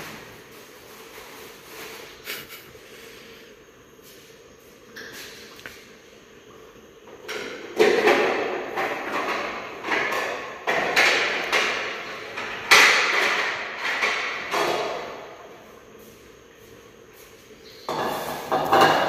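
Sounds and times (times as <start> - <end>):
sharp knocks and clatters in kitchen: 7.1 - 15.4, 17.9 - 19.0.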